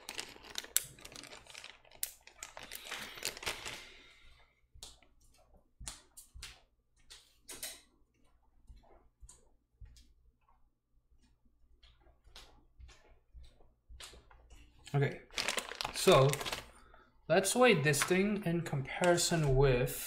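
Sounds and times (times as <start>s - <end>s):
plastic bag rustling: 0.0s - 4.2s, 15.0s - 18.2s.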